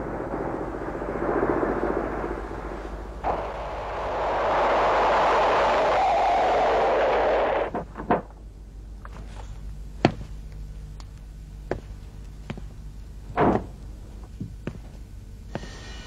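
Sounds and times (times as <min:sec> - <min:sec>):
light footsteps and knocks: 0:11.6 - 0:15.7.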